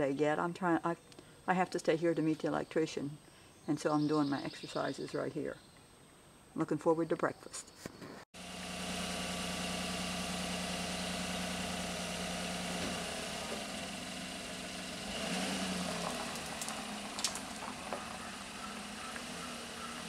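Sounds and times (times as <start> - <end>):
pickup truck engine idling: 8.4 - 20.0.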